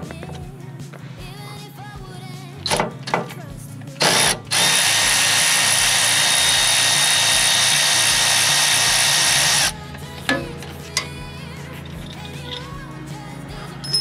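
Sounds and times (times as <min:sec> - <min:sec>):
power ratchet whirring: 0:04.0 - 0:12.9.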